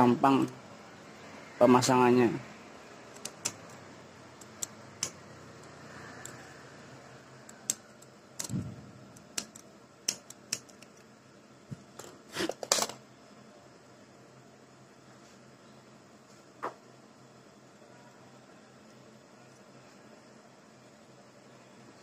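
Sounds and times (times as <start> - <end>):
scissors snipping wire: 3.1 - 3.8, 4.4 - 6.4, 7.4 - 11.1.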